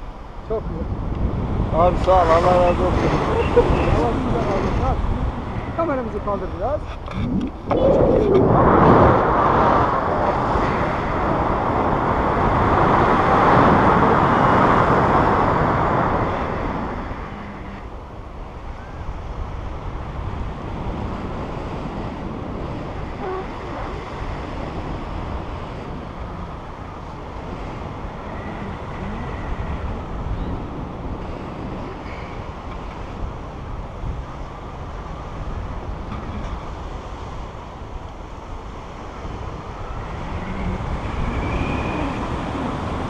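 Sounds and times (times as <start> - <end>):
wind rushing over microphone: 0.0 - 43.0.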